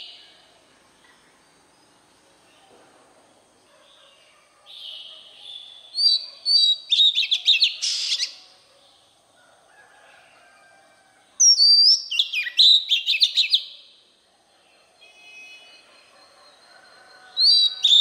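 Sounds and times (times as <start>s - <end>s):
bird singing whistles: 4.9s - 8.4s, 11.4s - 13.8s, 17.4s - 18.0s.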